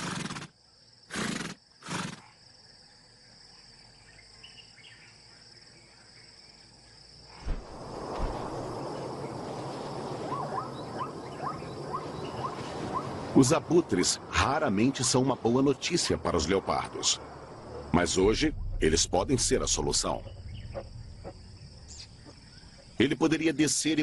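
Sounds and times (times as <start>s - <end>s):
zebra snort: 0.0s - 2.4s
insects droning: 0.0s - 24.0s
rushing noise: 16.4s - 23.0s.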